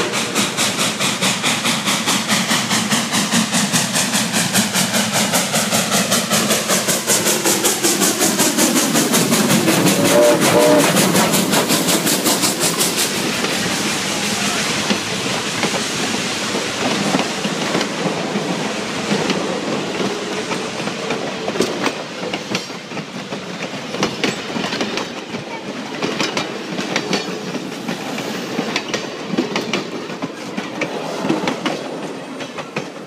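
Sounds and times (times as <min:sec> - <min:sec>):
train wheels rumbling on rails: 0:00.0 - 0:33.0
wheels clicking over rail joints: 0:14.8 - 0:33.0.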